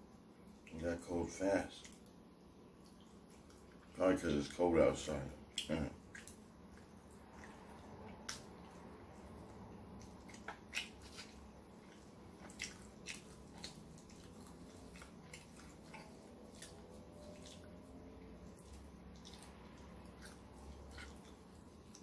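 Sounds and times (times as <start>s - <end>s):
person eating and chewing: 5.4s - 22.0s.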